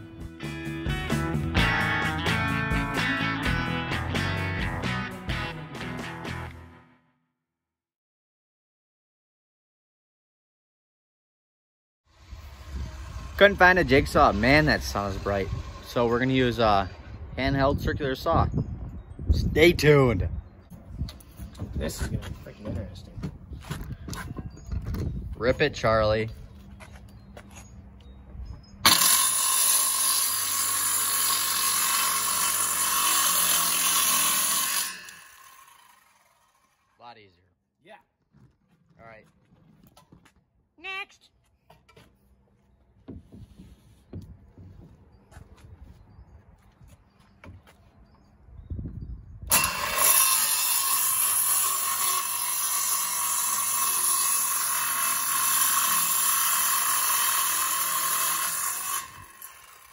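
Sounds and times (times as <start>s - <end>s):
circular saw cutting plywood: 12.1s - 17.1s, 28.8s - 37.0s, 49.5s - 59.9s.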